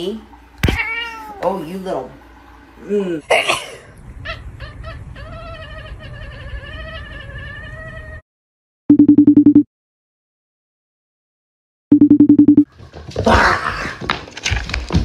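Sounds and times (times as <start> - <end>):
cat yowling: 0.6 - 1.4, 4.2 - 8.2.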